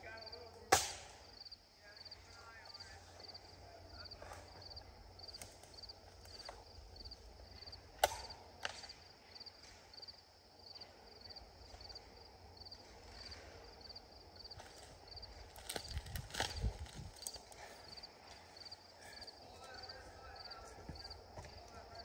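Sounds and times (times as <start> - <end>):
insect chirping: 1.2 - 22.0
footsteps through brush: 12.7 - 22.0
twigs snapping: 14.6 - 18.5.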